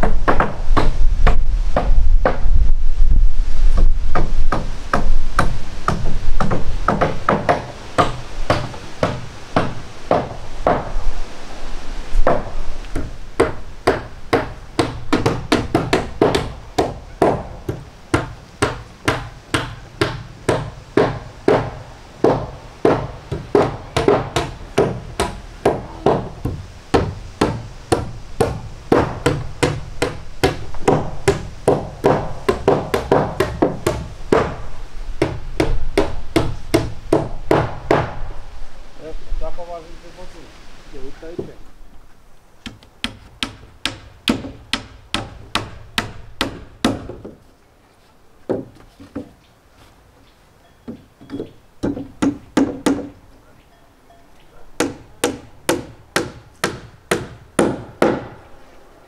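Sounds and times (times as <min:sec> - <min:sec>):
hammers driving nails into wood: 0:00.0 - 0:02.4, 0:03.8 - 0:10.9, 0:12.2 - 0:34.6, 0:35.2 - 0:38.2, 0:42.6 - 0:47.4, 0:51.2 - 0:53.2, 0:54.8 - 0:58.4.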